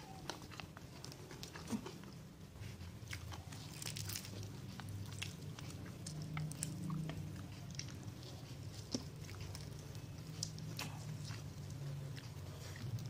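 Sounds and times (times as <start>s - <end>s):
chewing with mouth clicks: 0.0s - 13.0s
steady low hum: 0.0s - 13.0s.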